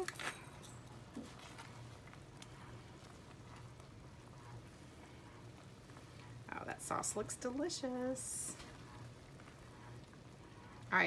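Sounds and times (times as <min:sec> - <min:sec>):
low steady hum: 0:00.0 - 0:11.0
cream sauce bubbling in pot: 0:00.8 - 0:11.0.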